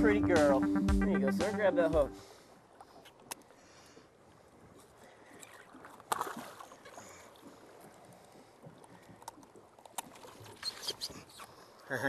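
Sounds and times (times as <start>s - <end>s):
faint water and wind: 0.0s - 12.0s
fish splashing: 5.2s - 11.7s.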